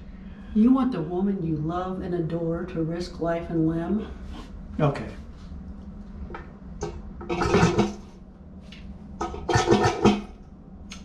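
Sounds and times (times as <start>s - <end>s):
low steady hum: 0.0s - 11.0s
toilet flushing: 7.2s - 8.1s, 9.2s - 10.4s.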